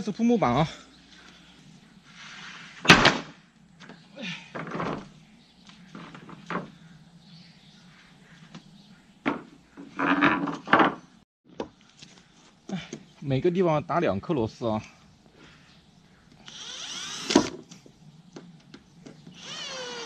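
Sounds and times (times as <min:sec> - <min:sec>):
wooden boards clattering: 0:09.3 - 0:11.0.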